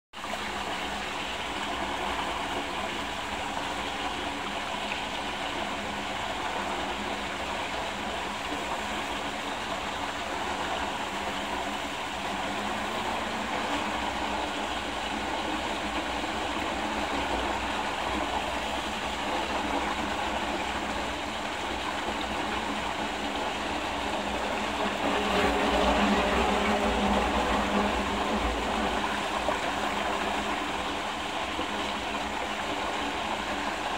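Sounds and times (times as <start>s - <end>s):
water rushing in whirlpool: 0.2s - 33.9s.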